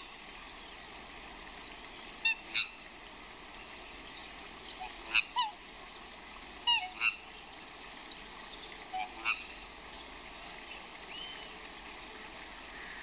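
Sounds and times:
steady background hiss: 0.0 - 13.0
swans honking: 6.6 - 7.2, 8.9 - 9.5.

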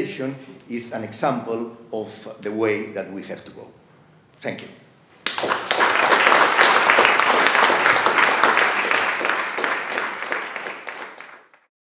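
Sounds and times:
audience applauding: 5.2 - 11.7.

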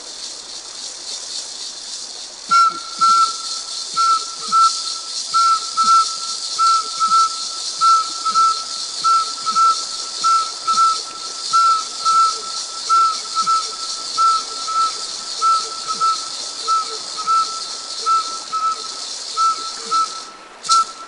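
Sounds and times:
steady high hiss: 0.0 - 21.0
short whistled call: 2.5 - 21.0.

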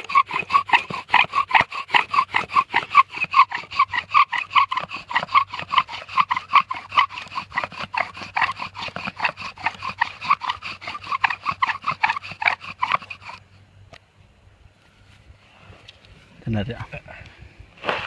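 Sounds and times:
bow drill spindle squeaking: 0.0 - 13.4.

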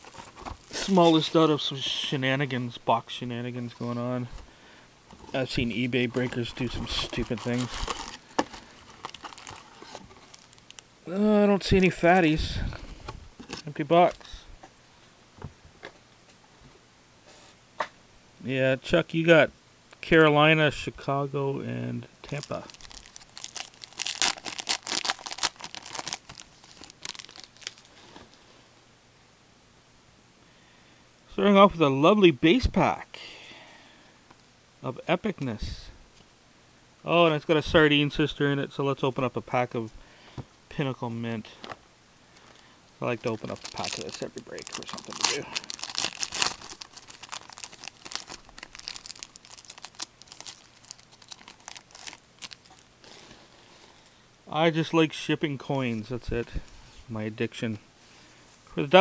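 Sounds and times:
wrapper tearing and crinkling: 0.0 - 1.3, 6.1 - 10.8, 22.3 - 28.1, 43.2 - 53.2.

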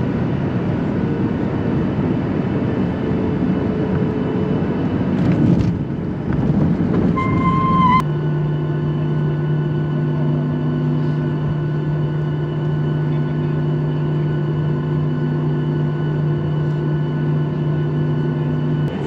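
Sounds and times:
jet engine rumbling in cabin: 0.0 - 19.0
low engine drone: 0.0 - 19.0
short high tone: 7.2 - 8.0.

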